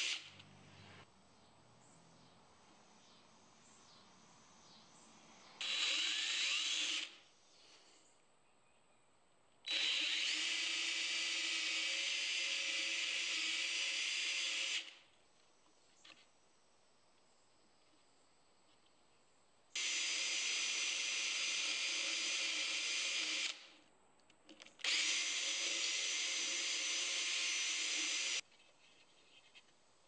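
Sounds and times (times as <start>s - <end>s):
cordless drill on wood: 0.0s - 0.4s, 5.6s - 7.2s, 9.7s - 15.0s, 19.8s - 23.8s, 24.8s - 28.4s.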